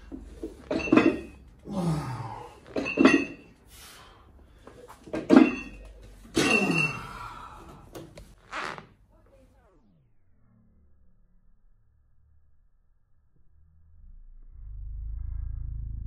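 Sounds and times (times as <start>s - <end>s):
weight plates clinking: 0.1s - 1.4s, 2.7s - 3.6s, 5.0s - 7.3s
forceful breathing: 1.6s - 2.6s, 3.6s - 5.0s, 6.7s - 8.2s.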